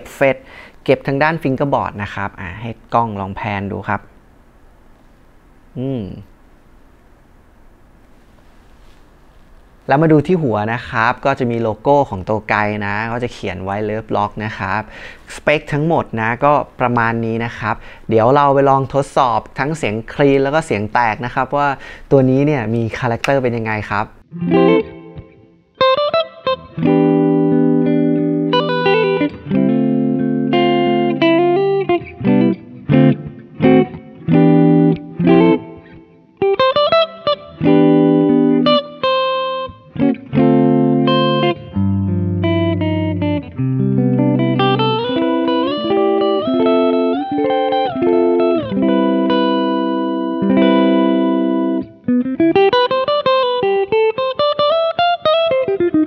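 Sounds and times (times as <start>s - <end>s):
electric guitar playing: 22.2s - 56.0s.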